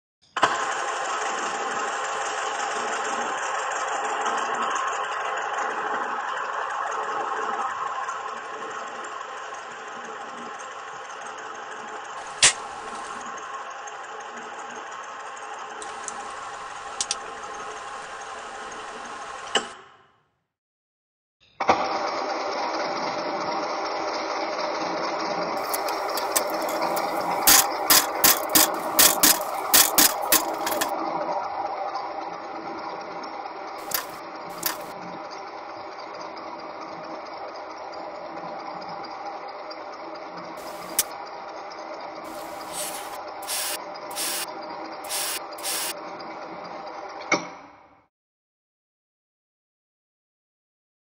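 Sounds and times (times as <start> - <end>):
mechanical rattling drone: 25.6 - 30.9, 33.8 - 34.9, 40.6 - 41.1, 42.2 - 44.5, 45.1 - 45.9
sharp click: 25.6 - 30.9, 33.8 - 34.9
spray-like hiss bursts: 33.8 - 34.9, 40.6 - 41.1, 42.3 - 44.5, 45.1 - 45.9.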